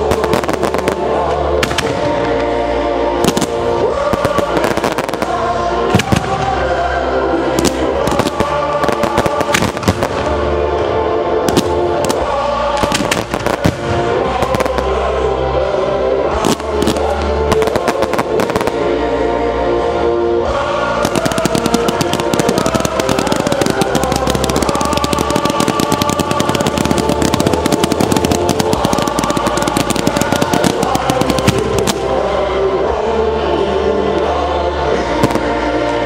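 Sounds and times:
fireworks bangs: 0:00.0 - 0:02.6, 0:03.2 - 0:06.8, 0:07.6 - 0:10.5, 0:11.4 - 0:15.0, 0:21.0 - 0:32.3
rapid fireworks reports: 0:00.0 - 0:20.0, 0:20.6 - 0:36.0
music: 0:00.0 - 0:36.0.

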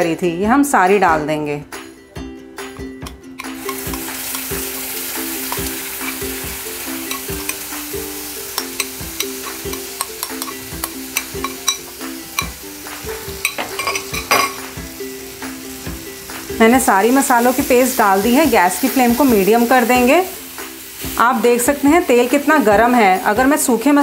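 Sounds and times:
soft background music: 0:00.0 - 0:24.0
paste sizzling in hot oil: 0:03.0 - 0:24.0.

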